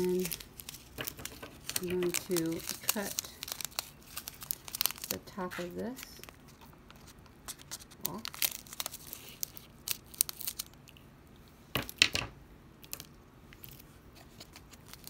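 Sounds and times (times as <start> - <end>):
plastic bag crinkling: 0.0 - 11.0, 12.9 - 15.0.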